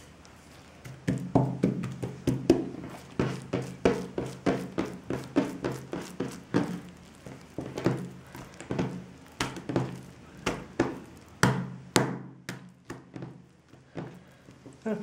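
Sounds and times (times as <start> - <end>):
dough thumping and brushing on table: 0.0 - 14.8.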